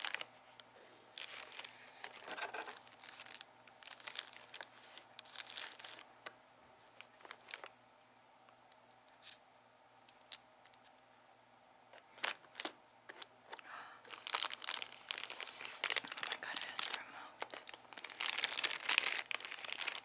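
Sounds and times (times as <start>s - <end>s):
plastic bags crinkling: 0.0s - 0.3s, 1.1s - 6.1s, 6.9s - 7.7s, 12.0s - 20.0s.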